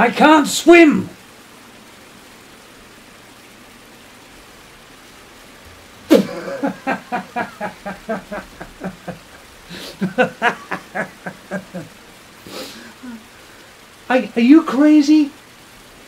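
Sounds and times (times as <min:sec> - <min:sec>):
faint steady hiss: 0:00.0 - 0:16.0
man laughing: 0:06.1 - 0:13.3.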